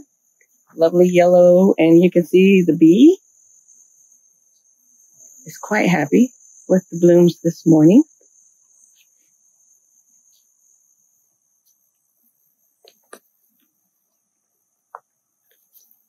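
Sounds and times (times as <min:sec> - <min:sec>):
insects trilling: 0:00.0 - 0:16.0.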